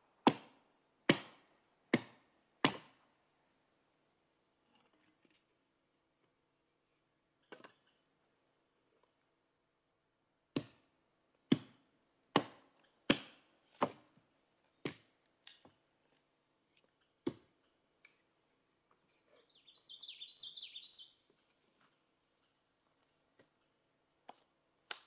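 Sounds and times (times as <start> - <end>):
wood being chopped: 0.2 - 3.0, 10.5 - 10.8, 11.5 - 14.1, 14.8 - 15.7, 17.2 - 17.5
bird singing: 7.1 - 9.9, 12.1 - 13.1, 14.2 - 18.0, 19.0 - 25.0.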